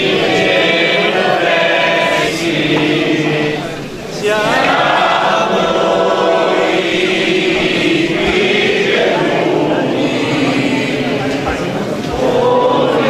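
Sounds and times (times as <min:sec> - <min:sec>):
congregation singing a hymn: 0:00.0 - 0:13.0.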